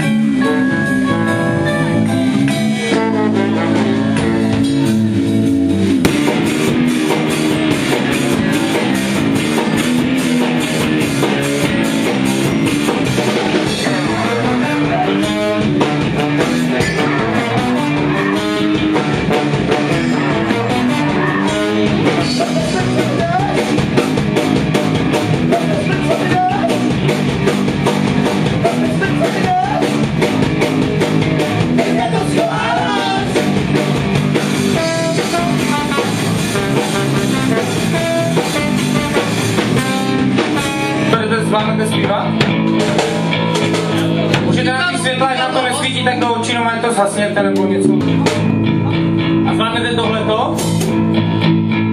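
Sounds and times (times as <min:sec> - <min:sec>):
bass guitar: 0:00.0 - 0:51.9
drum kit: 0:00.0 - 0:51.9
electric guitars: 0:00.0 - 0:51.9.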